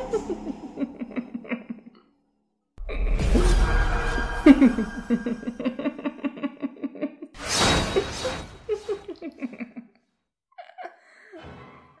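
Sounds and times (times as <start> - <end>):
person laughing: 0.0 - 2.0, 4.3 - 7.4, 8.0 - 10.0, 10.6 - 11.4.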